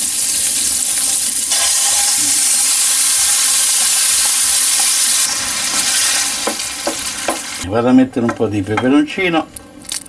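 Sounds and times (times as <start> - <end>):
meat sizzling in oil: 0.0 - 7.6.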